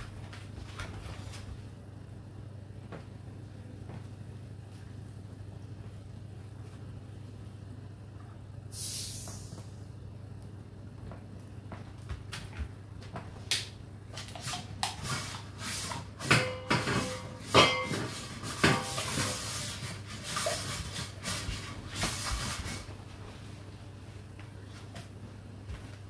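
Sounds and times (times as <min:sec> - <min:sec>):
dishwasher pump humming: 0:09.2 - 0:26.0.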